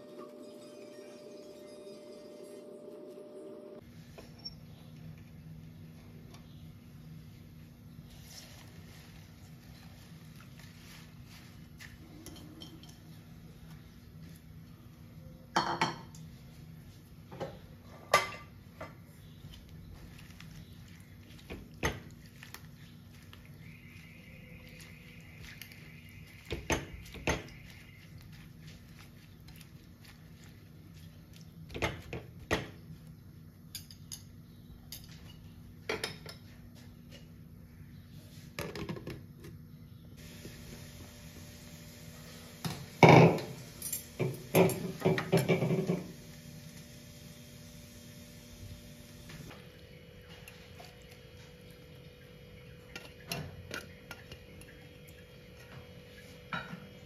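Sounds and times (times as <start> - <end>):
spatula knocking and scraping pan: 44.2 - 46.1.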